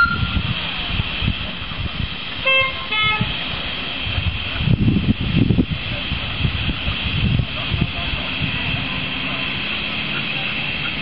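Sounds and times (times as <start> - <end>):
steam locomotive whistle toots: 0.0 - 0.4, 2.4 - 3.3
low rumble of train moving: 0.0 - 11.0
steady steam hiss: 0.0 - 11.0.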